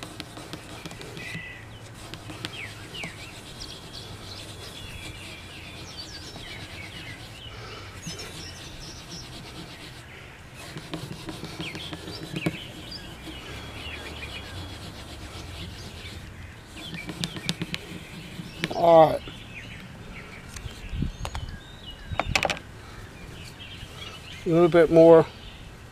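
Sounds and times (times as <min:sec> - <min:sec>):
hand rubbing guitar wood: 0:00.0 - 0:19.3
birds chirping: 0:00.0 - 0:25.9.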